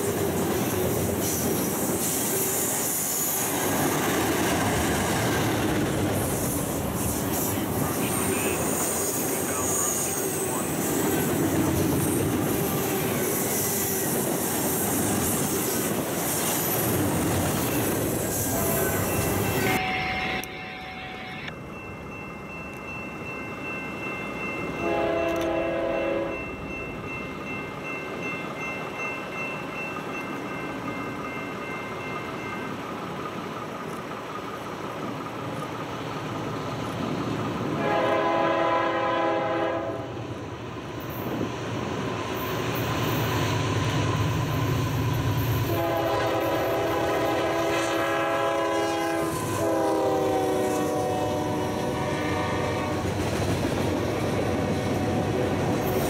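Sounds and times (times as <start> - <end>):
diesel locomotive horn: 18.3 - 21.5, 24.8 - 26.5, 37.8 - 40.2, 45.6 - 53.2, 54.5 - 55.6.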